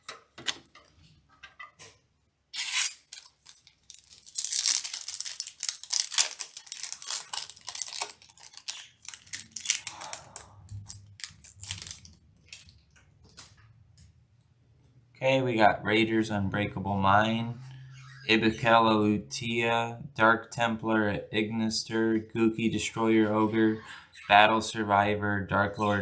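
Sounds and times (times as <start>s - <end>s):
foil wrapper tearing and crinkling: 2.6s - 12.8s.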